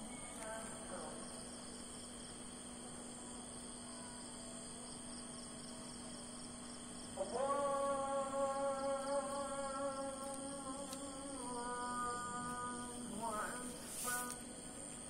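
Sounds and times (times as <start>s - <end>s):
crickets chirping: 0.0s - 15.0s
faint repeating pulses: 0.0s - 15.0s
low steady hum: 0.0s - 15.0s
man singing call to prayer: 7.1s - 14.7s.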